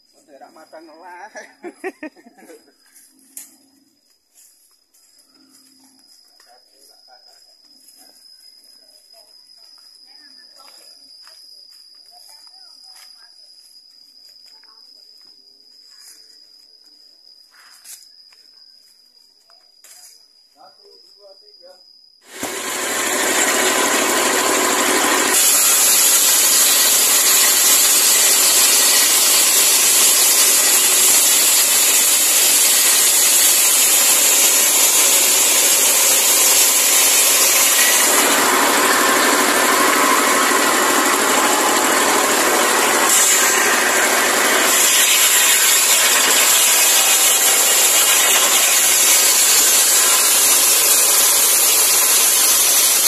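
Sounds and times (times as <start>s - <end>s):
circular saw cutting log: 22.2s - 53.0s.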